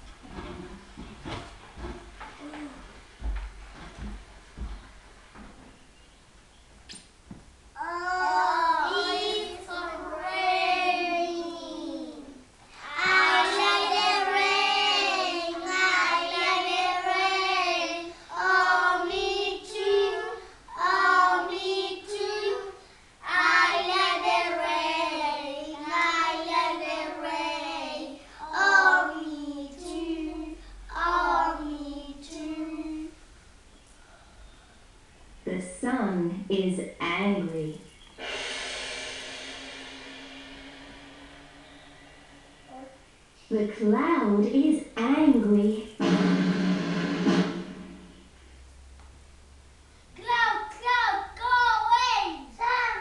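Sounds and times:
children singing together: 7.8s - 33.2s.

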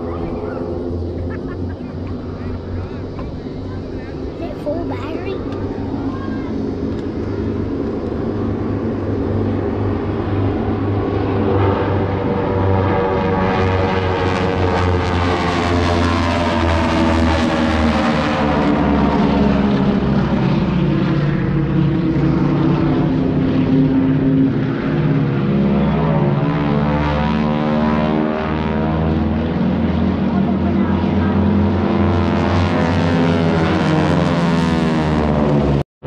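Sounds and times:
propeller planes droning past: 0.0s - 35.8s.

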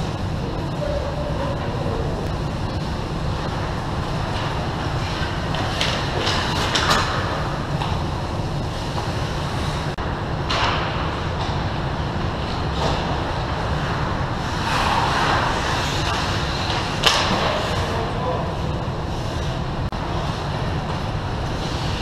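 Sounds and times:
skate blades scraping ice: 13.8s - 17.9s.

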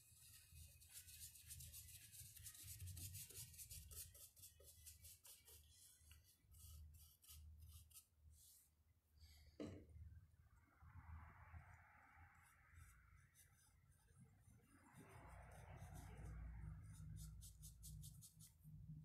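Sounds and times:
paintbrush scrubbing wood: 0.0s - 8.6s.

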